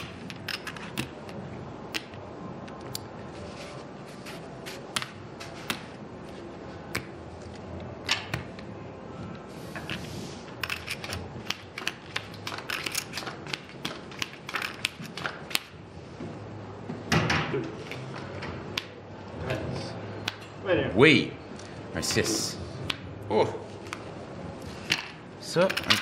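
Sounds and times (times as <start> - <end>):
playing cards swishing: 3.3 - 6.4
casino chips clicking: 10.6 - 15.7.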